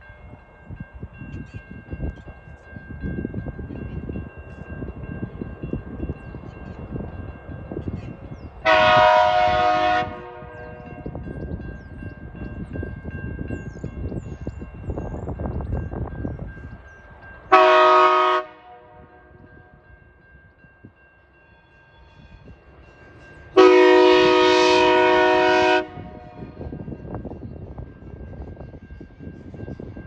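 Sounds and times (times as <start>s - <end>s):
locomotive horn blast: 8.6s - 11.1s, 17.5s - 19.8s, 23.6s - 26.6s.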